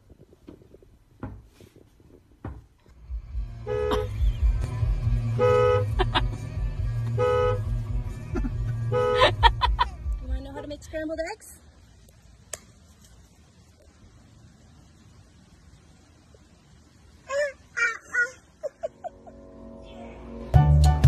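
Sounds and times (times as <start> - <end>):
low steady rumble: 0.0 - 21.0
car horn honking: 3.6 - 4.2, 5.2 - 6.1, 7.1 - 7.8, 8.8 - 9.6.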